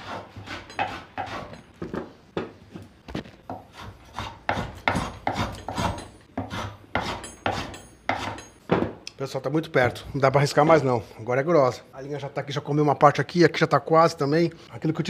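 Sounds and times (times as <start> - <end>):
hand plane scraping wood: 0.0 - 1.6, 3.5 - 8.3.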